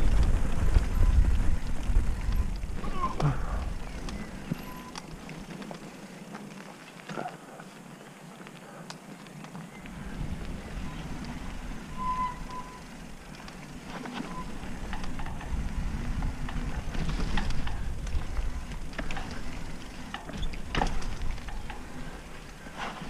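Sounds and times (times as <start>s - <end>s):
wind on microphone: 0.0s - 4.9s
bike clicks and rattles: 0.0s - 23.0s
bike tyres on dirt trail: 0.0s - 23.0s
brief squeak: 11.9s - 12.9s.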